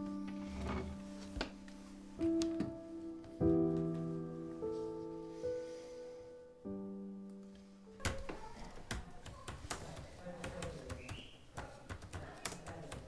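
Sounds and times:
held musical chord: 0.0s - 8.0s.

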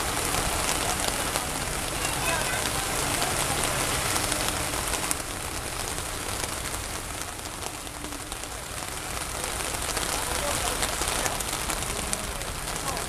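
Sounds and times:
heavy rain hissing: 0.0s - 13.0s
sharp raindrop hits: 0.0s - 13.0s.

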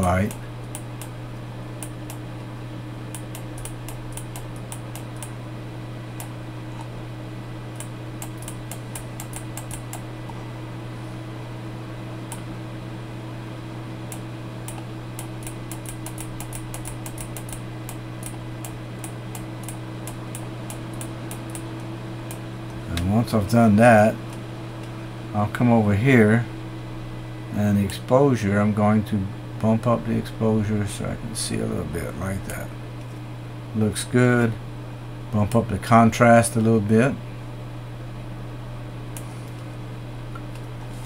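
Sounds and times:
low electrical hum: 0.0s - 41.0s
mouse clicks and scroll ticks: 14.1s - 21.6s.

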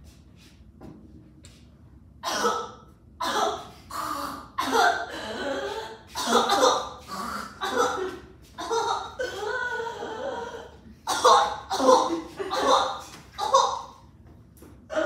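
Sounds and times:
person coughing harshly: 2.2s - 14.0s.

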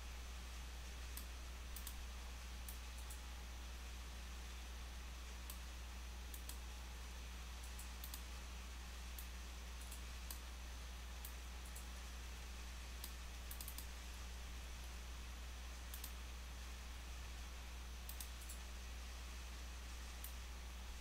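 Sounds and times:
electrical hum and hiss: 0.0s - 21.0s
computer mouse clicking: 1.1s - 2.0s, 2.6s - 3.2s, 6.3s - 6.6s, 7.6s - 8.3s, 9.2s - 10.5s, 11.2s - 11.9s, 13.0s - 13.9s, 15.9s - 16.2s, 18.0s - 18.6s, 20.2s - 20.4s.

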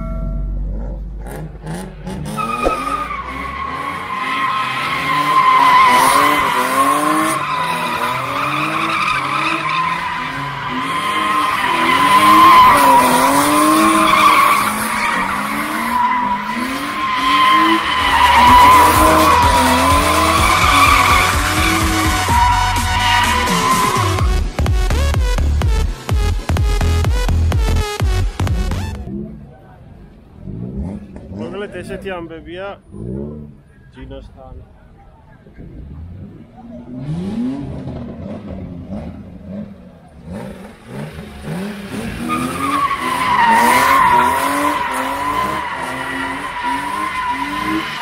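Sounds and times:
car engine revving: 0.6s - 32.1s, 35.6s - 48.0s
tyres squealing: 2.3s - 24.3s, 42.0s - 48.0s.

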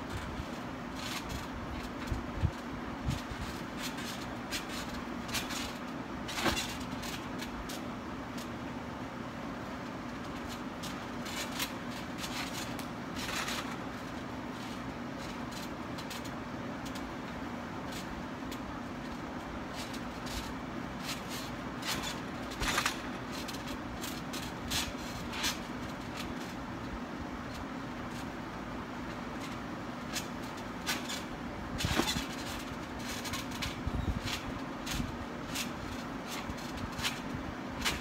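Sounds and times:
mechanical hum: 0.0s - 38.0s
trampoline thumping and creaking: 0.0s - 38.0s
sharp landing knocks: 21.3s - 25.1s.

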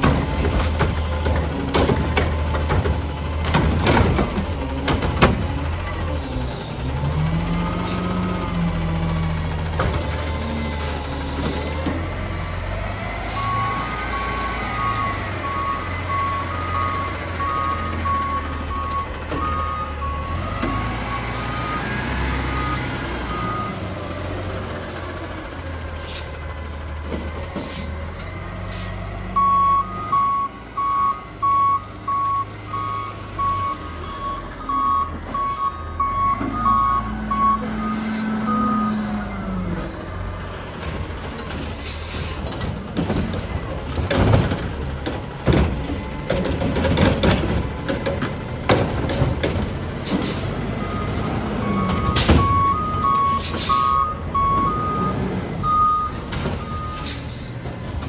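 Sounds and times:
garbage truck engine running: 0.0s - 58.0s
backup alarm beeping: 29.4s - 38.9s, 50.8s - 57.1s.

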